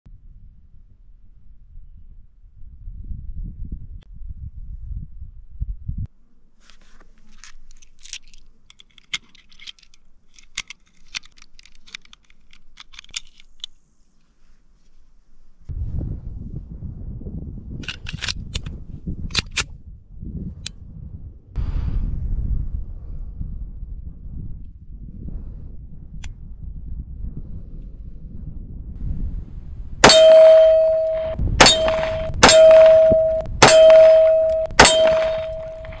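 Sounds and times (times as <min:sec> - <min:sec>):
pistol shots: 0:30.0 - 0:36.0
steel target ringing clang: 0:30.0 - 0:36.0.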